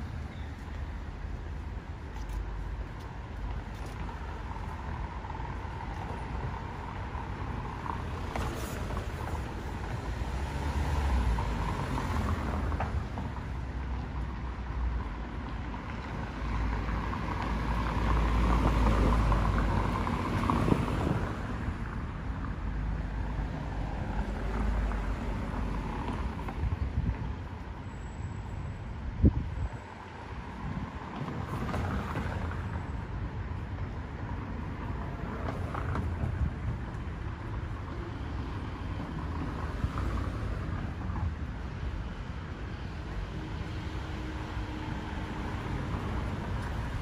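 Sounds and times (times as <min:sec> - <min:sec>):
cars passing: 0:00.0 - 0:47.0
road traffic rumble: 0:00.0 - 0:47.0.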